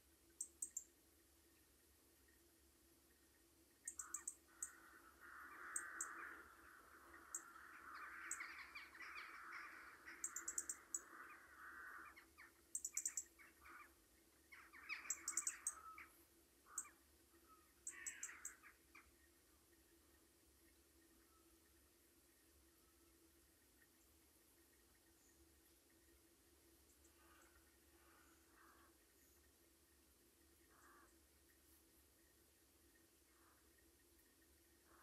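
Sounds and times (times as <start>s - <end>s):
faint high clicks: 0.3s - 0.9s
crows cawing: 4.0s - 12.4s, 17.9s - 18.7s, 27.1s - 29.0s, 30.7s - 31.1s.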